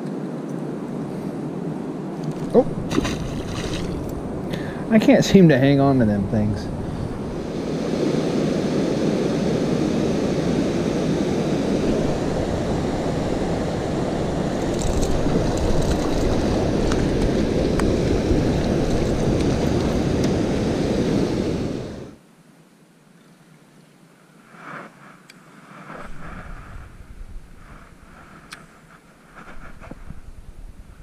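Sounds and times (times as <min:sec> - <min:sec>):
wind on microphone: 0:00.6 - 0:22.2, 0:25.8 - 0:31.0
river water rushing: 0:02.1 - 0:04.5.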